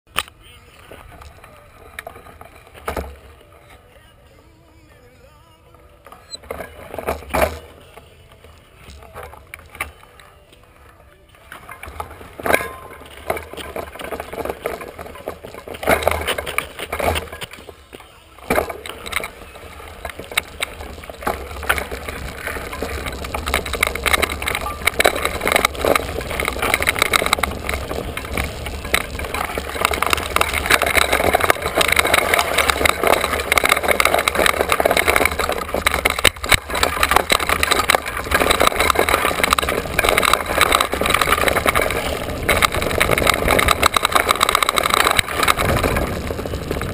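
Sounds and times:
bike tyres on dirt: 0:00.1 - 0:46.9
bike rattling and knocking: 0:00.9 - 0:03.5, 0:06.1 - 0:08.1, 0:11.4 - 0:46.9
wind rumble on microphone: 0:18.7 - 0:46.9.

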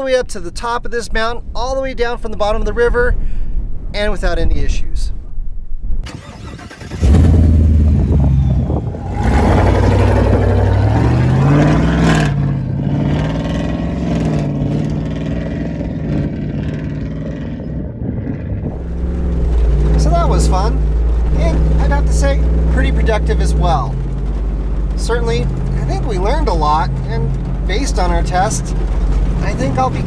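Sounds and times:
engine revving loud: 0:06.1 - 0:30.0
tires on gravel: 0:06.1 - 0:30.0.

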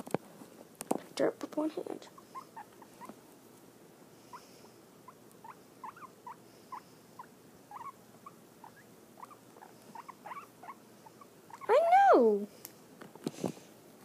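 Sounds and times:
guinea pig squeaking: 0:02.1 - 0:03.1, 0:05.0 - 0:12.0.

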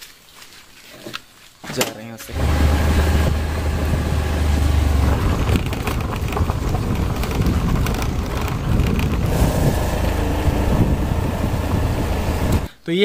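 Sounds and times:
motor scooter running: 0:02.3 - 0:12.7
wind rumbling on microphone: 0:02.4 - 0:12.7.

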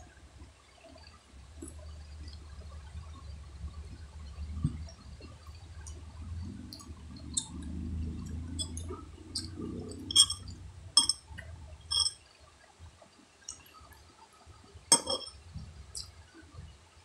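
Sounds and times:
metal spoon clinking on glass: 0:10.1 - 0:11.2, 0:11.9 - 0:12.2, 0:14.9 - 0:15.4.

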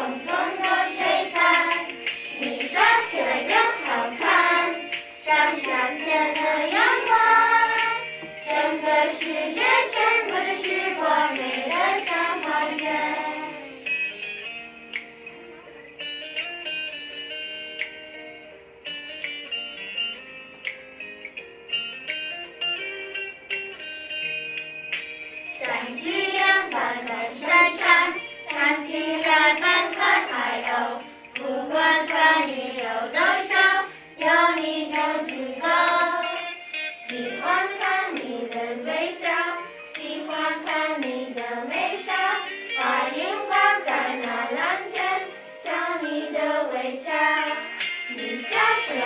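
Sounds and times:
children singing: 0:00.0 - 0:13.8, 0:25.5 - 0:36.5, 0:37.1 - 0:49.0.

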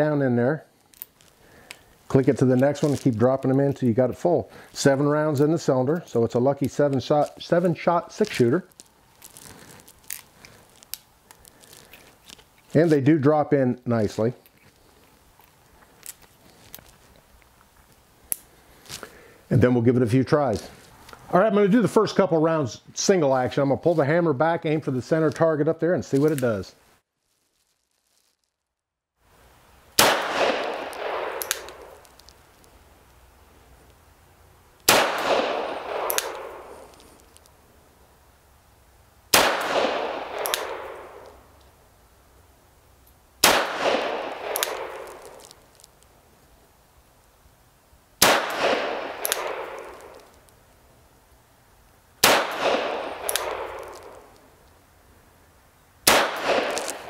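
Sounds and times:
revolver shots echoing: 0:30.0 - 0:32.0, 0:34.9 - 0:36.8, 0:39.4 - 0:41.3, 0:43.4 - 0:45.3, 0:48.2 - 0:50.2, 0:52.2 - 0:54.3, 0:56.1 - 0:57.0.

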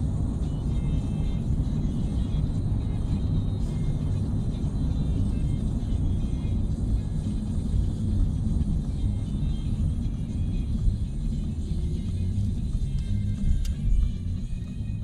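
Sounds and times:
car driving rumble: 0:00.0 - 0:15.0
music playing: 0:00.0 - 0:15.0.

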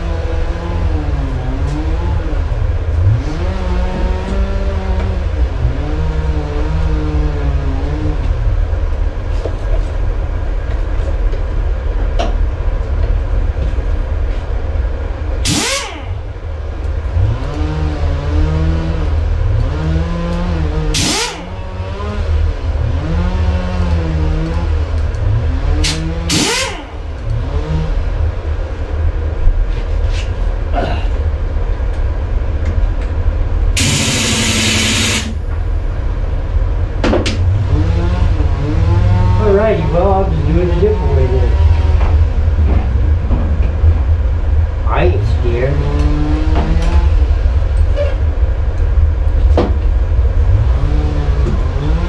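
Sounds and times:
air tool bursts: 0:15.4 - 0:16.2, 0:21.0 - 0:21.5, 0:25.8 - 0:26.9, 0:33.8 - 0:35.4
air compressor humming: 0:15.4 - 0:16.3, 0:19.7 - 0:22.1, 0:25.8 - 0:27.6, 0:33.8 - 0:35.6.

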